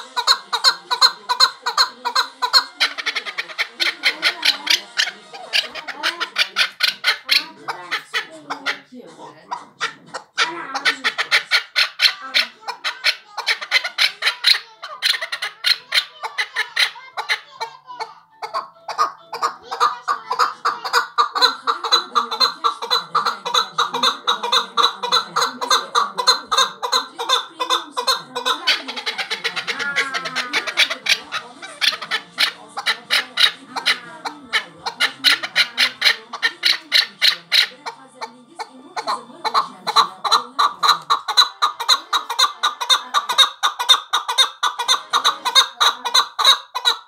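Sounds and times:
partridge clucking calls: 0:00.0 - 0:47.0.

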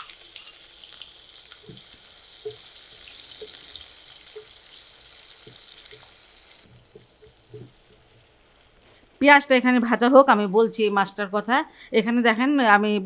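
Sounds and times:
onions sizzling in hot oil: 0:00.0 - 0:10.4.

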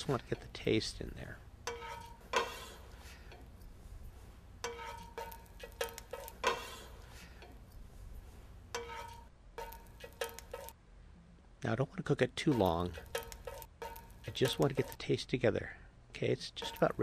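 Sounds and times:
metal spatula scraping frying pan: 0:01.7 - 0:03.3, 0:04.6 - 0:07.4, 0:08.8 - 0:10.8, 0:12.5 - 0:15.0, 0:16.6 - 0:17.0.

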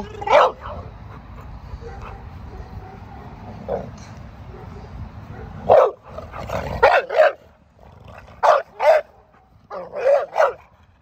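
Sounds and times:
dog barking: 0:00.3 - 0:00.8, 0:01.8 - 0:03.9, 0:04.5 - 0:06.0, 0:06.8 - 0:07.4, 0:08.4 - 0:10.6.

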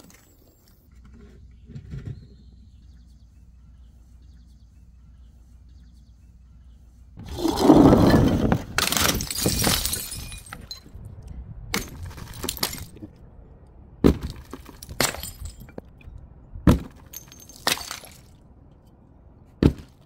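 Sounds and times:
glass bottles shattering on paving: 0:07.4 - 0:11.0, 0:11.7 - 0:13.1, 0:14.1 - 0:15.9, 0:16.7 - 0:18.4
breaking glass cracks and clinks: 0:08.8 - 0:11.0, 0:11.7 - 0:13.1, 0:14.2 - 0:15.9, 0:16.9 - 0:18.4.

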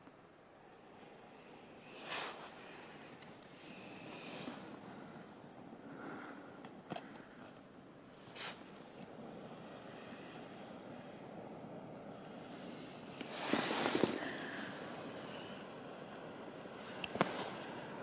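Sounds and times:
camping stove hissing: 0:01.2 - 0:05.2, 0:08.0 - 0:18.0.

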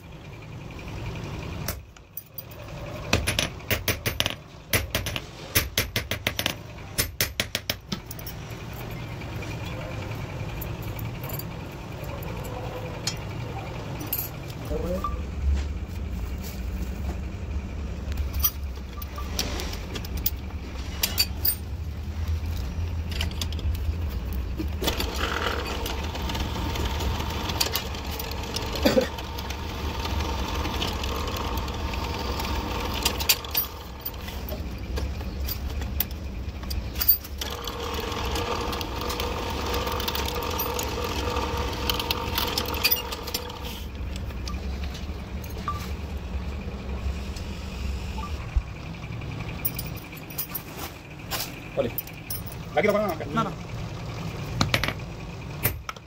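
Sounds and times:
drill press motor hum: 0:22.4 - 0:50.2
drill bit whining in metal: 0:24.9 - 0:34.6, 0:37.4 - 0:43.9.

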